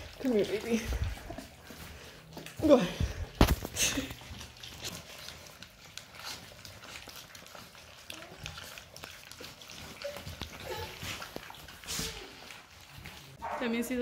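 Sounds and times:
puppies mouthing clicks and smacks: 0:00.0 - 0:13.4.

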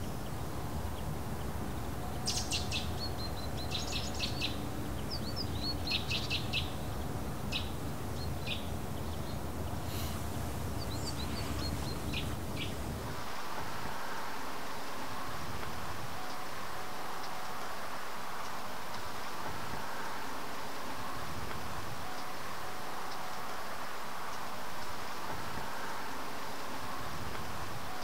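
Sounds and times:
small birds chirping: 0:00.0 - 0:13.2
low background rumble: 0:00.0 - 0:28.0.

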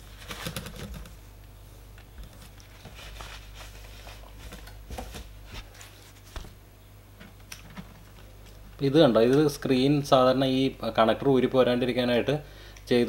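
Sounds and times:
hands tapping and rustling laptop: 0:00.0 - 0:01.2, 0:02.0 - 0:06.6
low steady hum: 0:00.0 - 0:13.0.

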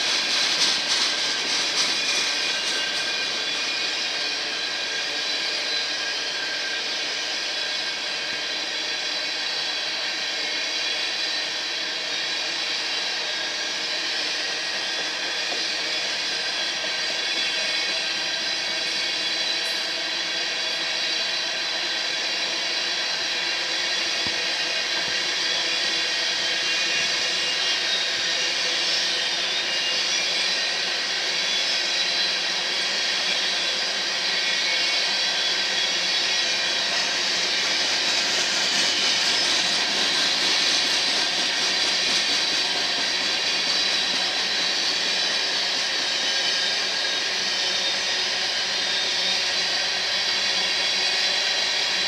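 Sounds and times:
train wheels rumbling on rails: 0:00.0 - 0:52.0.

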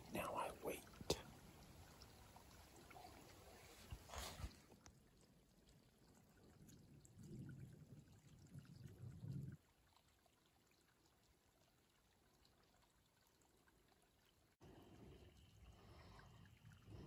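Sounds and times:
faint outdoor ambience: 0:00.0 - 0:05.7.

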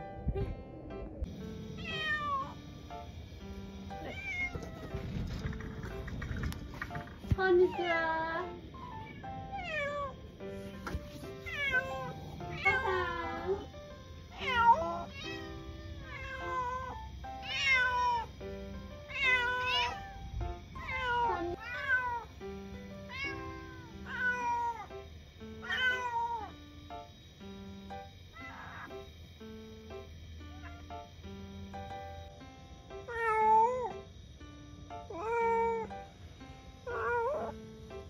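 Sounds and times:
kitten meowing: 0:01.8 - 0:02.6, 0:04.0 - 0:05.4, 0:08.8 - 0:10.2, 0:11.5 - 0:13.7, 0:14.3 - 0:18.3, 0:20.8 - 0:22.3, 0:23.1 - 0:24.9, 0:25.6 - 0:26.6, 0:30.5 - 0:31.1, 0:36.9 - 0:37.5.

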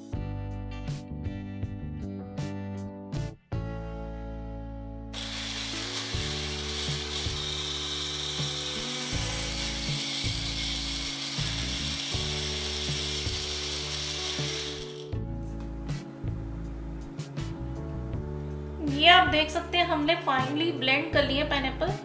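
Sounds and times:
blender grinding fruit: 0:05.2 - 0:15.2.

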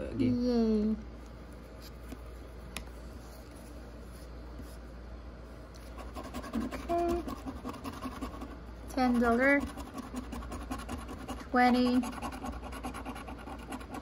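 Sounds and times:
coin scratching lottery ticket: 0:06.0 - 0:14.0.

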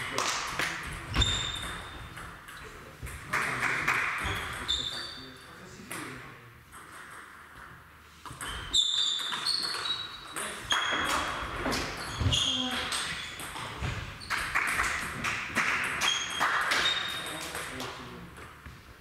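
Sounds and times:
table tennis balls clicking: 0:06.7 - 0:18.7.

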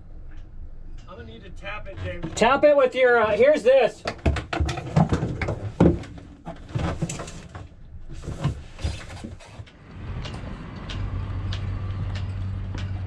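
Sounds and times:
steady low hum: 0:00.0 - 0:02.6.

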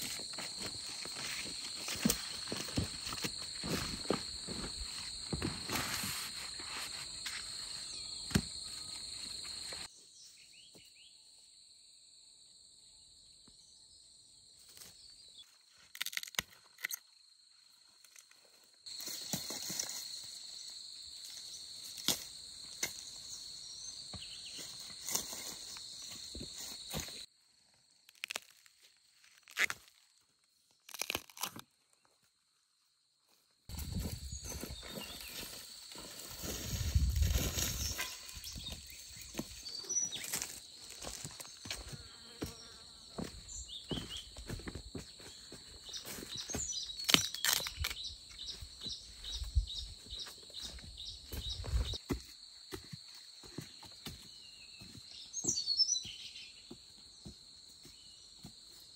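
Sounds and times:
high insect drone: 0:00.0 - 0:10.5, 0:16.6 - 0:27.5, 0:33.7 - 0:58.9.

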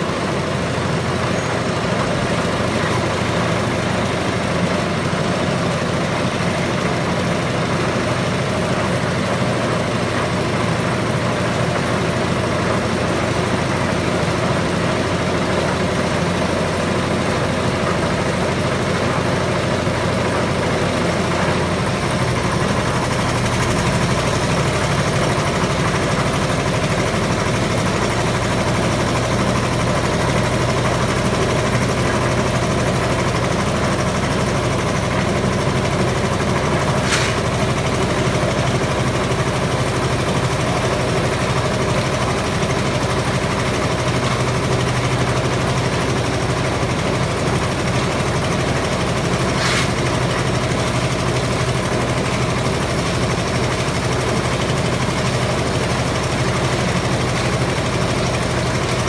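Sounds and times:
concrete mixer engine drone: 0:00.0 - 0:59.0.

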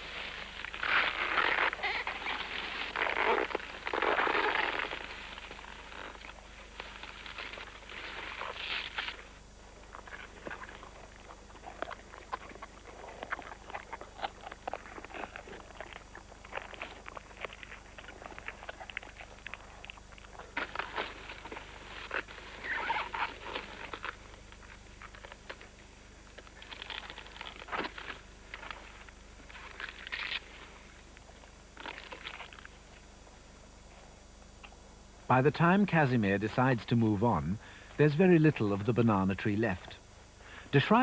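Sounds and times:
leaves tearing and rustling: 0:00.0 - 0:25.7, 0:26.4 - 0:30.8
stems snapping and crunching: 0:29.5 - 0:30.5.

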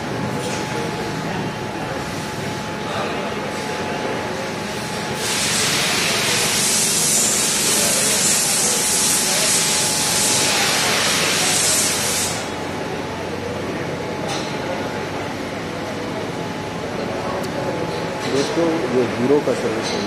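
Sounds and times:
high-pressure jet hissing: 0:05.2 - 0:12.5.

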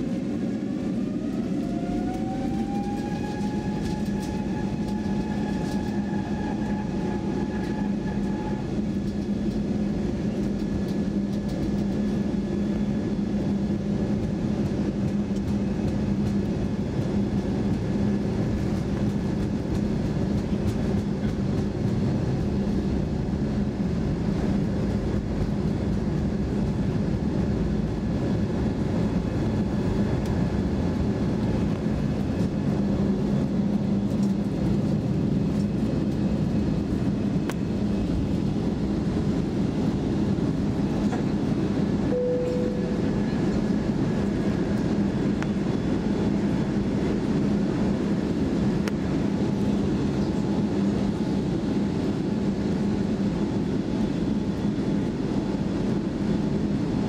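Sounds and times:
jet engines humming: 0:00.0 - 0:57.0
high whine: 0:41.8 - 0:46.0.

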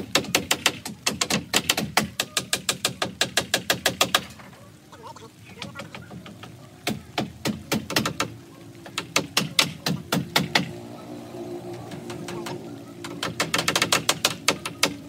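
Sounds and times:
hammer striking nails: 0:13.1 - 0:15.0.

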